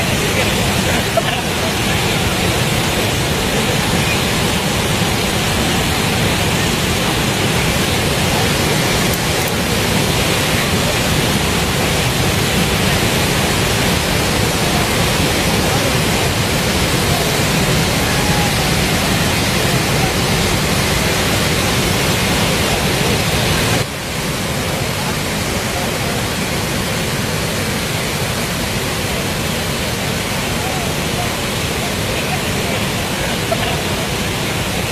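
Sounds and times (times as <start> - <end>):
waterfall rushing: 0.0 - 34.9.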